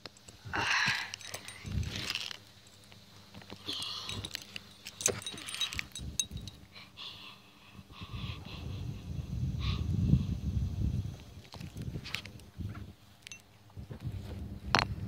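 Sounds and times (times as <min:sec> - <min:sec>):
handling rustle: 0:00.0 - 0:06.6
metal ball bearing clinking: 0:00.0 - 0:06.6, 0:13.2 - 0:13.5.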